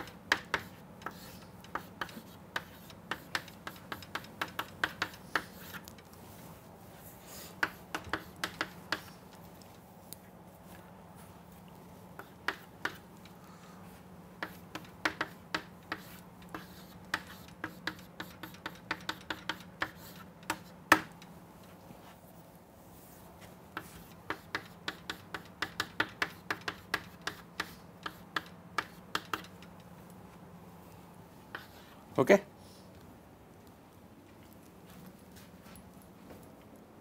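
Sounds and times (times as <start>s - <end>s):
chalk tapping on a chalkboard: 0.0s - 5.9s, 7.4s - 9.2s, 12.2s - 13.0s, 14.4s - 21.2s, 23.4s - 29.7s, 31.5s - 32.0s.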